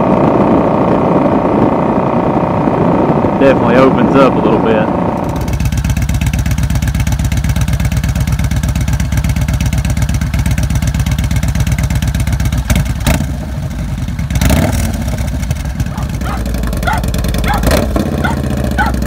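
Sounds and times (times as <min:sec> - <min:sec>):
motorcycle engine idling loudly: 0:00.0 - 0:19.0
motorcycle engine revving: 0:00.0 - 0:19.0.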